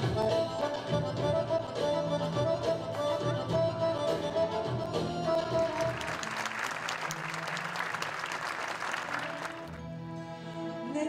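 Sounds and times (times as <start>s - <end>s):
audience applauding: 5.4s - 9.8s.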